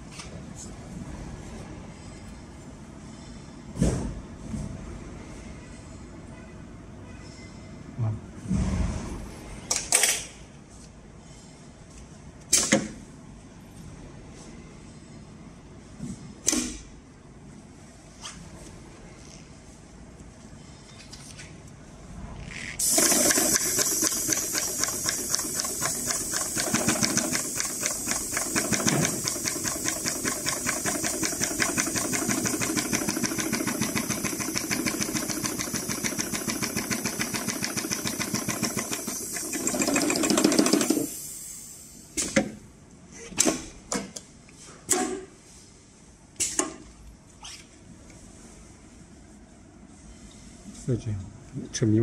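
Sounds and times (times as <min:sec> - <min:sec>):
sewing machine stitching: 0:22.8 - 0:41.1.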